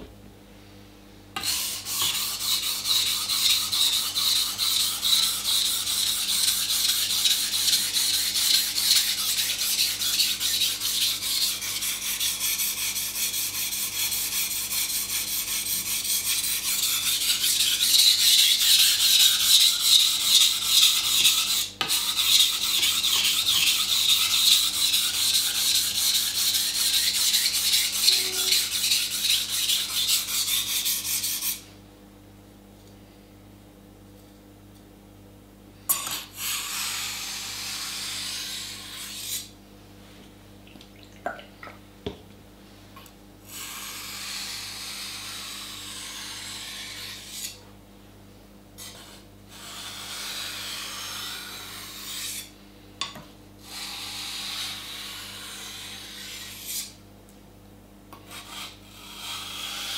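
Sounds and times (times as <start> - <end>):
knife scraping on sharpening stone: 16.9 - 30.1, 35.9 - 39.5, 48.8 - 52.5.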